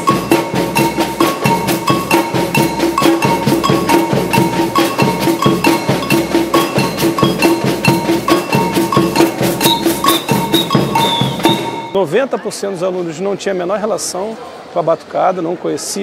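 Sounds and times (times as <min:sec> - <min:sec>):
bass drums: 0:00.0 - 0:12.0
metal shakers: 0:00.0 - 0:12.0
high two-note pattern: 0:00.0 - 0:12.1
snare drums: 0:00.0 - 0:12.1.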